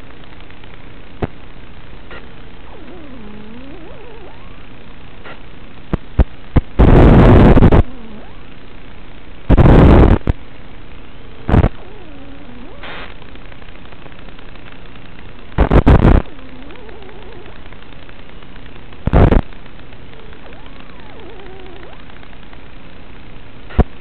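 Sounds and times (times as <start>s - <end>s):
static hiss: 0.0s - 24.0s
faint wavering tones: 2.1s - 5.6s, 7.1s - 8.9s, 10.9s - 13.7s, 16.0s - 23.8s
loud bursts of noise: 5.2s - 10.4s, 11.4s - 14.9s, 15.6s - 20.7s.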